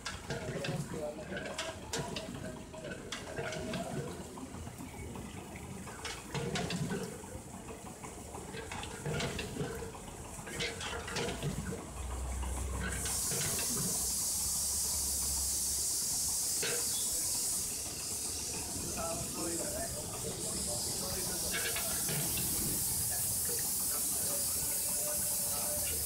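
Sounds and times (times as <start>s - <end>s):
loud steady hiss: 12.9s - 26.0s.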